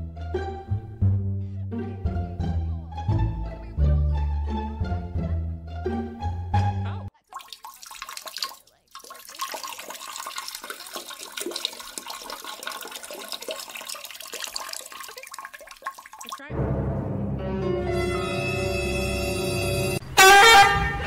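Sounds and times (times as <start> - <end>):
water trickling into toilet bowl: 7.2 - 16.5.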